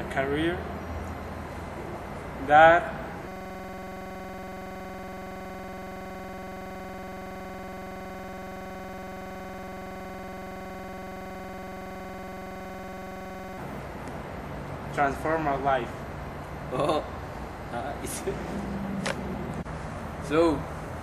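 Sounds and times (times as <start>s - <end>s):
electronic buzzing tone: 0.0s - 14.4s.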